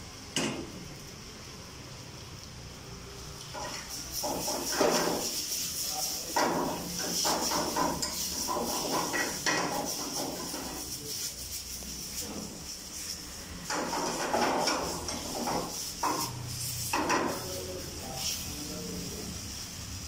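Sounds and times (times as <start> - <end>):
steady high hiss: 0.0 - 20.0
metal ladle scraping frying pan: 3.6 - 10.9.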